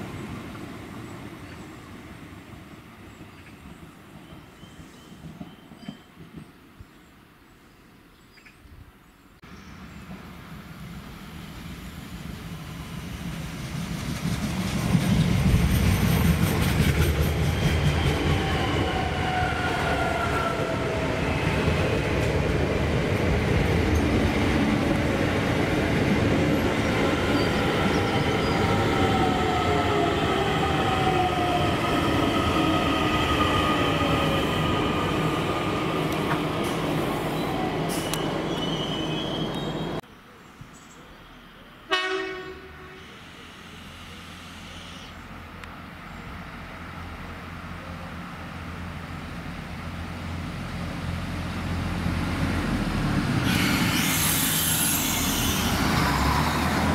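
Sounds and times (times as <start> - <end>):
train rumbling: 9.5 - 40.0, 41.9 - 56.9
train brakes whining: 36.3 - 40.0, 41.9 - 45.2, 53.4 - 56.4.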